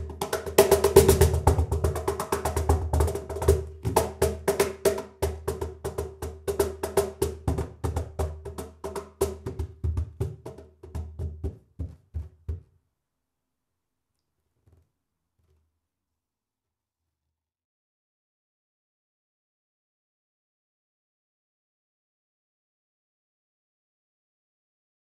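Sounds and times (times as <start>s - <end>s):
cajon played with hands: 0.0s - 12.8s.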